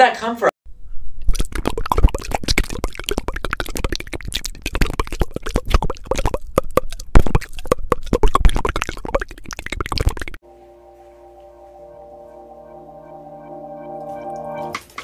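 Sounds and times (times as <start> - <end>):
wet mouth noises: 1.2 - 10.4.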